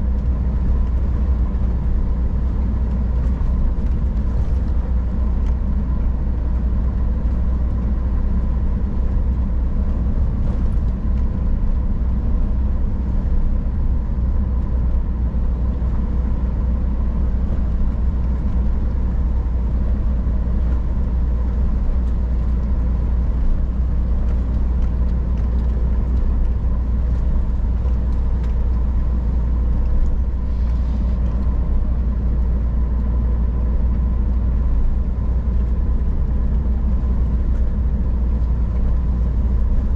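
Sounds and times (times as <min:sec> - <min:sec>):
road rumble: 0:00.0 - 0:39.9
truck diesel engine drone: 0:00.0 - 0:39.9.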